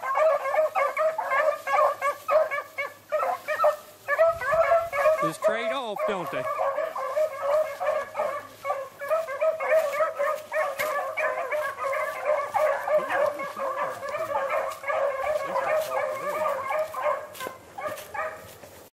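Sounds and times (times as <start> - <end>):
dogs baying: 0.0 - 18.8.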